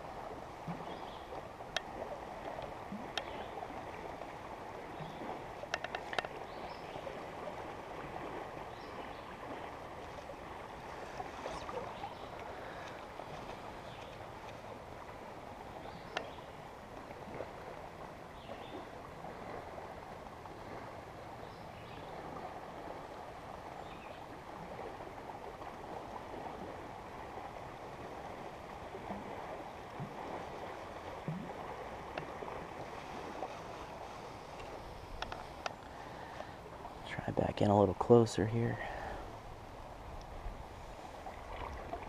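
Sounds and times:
creek water rushing: 0:00.0 - 0:42.0
faint ticks: 0:01.7 - 0:03.4, 0:05.6 - 0:06.4, 0:11.5 - 0:14.6, 0:16.1 - 0:16.4, 0:32.1 - 0:32.3, 0:34.5 - 0:36.5.

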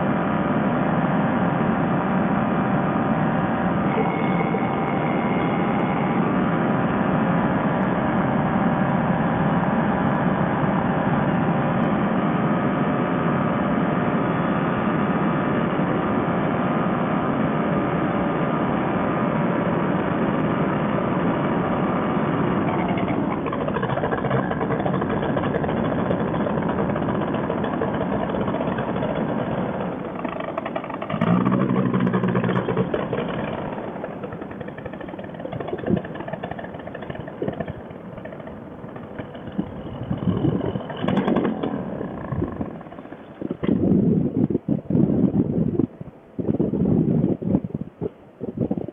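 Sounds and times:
paramotor engine running: 0:00.0 - 0:45.3
wind rush: 0:33.5 - 0:48.9.

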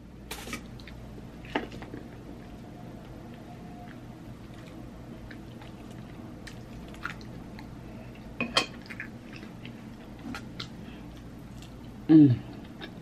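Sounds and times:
steady low hum: 0:00.0 - 0:13.0
person chewing: 0:03.3 - 0:13.0.

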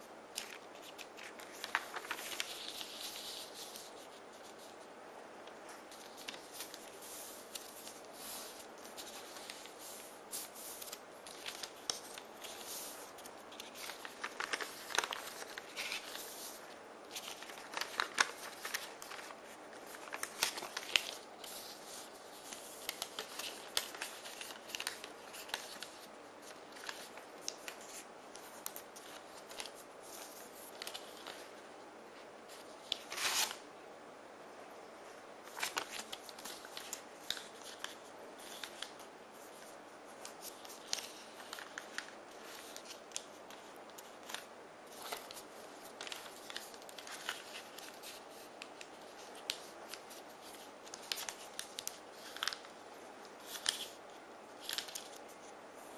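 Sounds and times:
paper folding rustles: 0:00.0 - 0:04.9, 0:05.6 - 0:33.6, 0:35.4 - 0:55.9.

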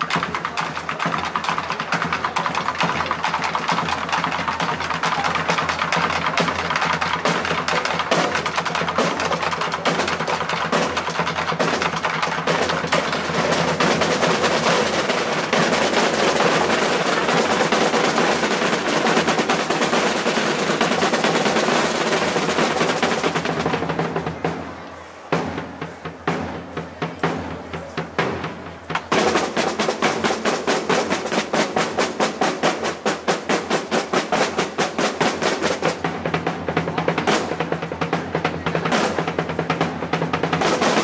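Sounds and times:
snare drum rolls: 0:00.0 - 0:41.0.

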